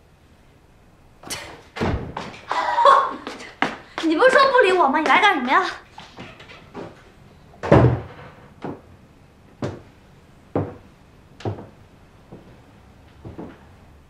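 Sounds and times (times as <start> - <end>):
door shutting with heavy thud: 1.3 - 2.5, 7.6 - 8.8.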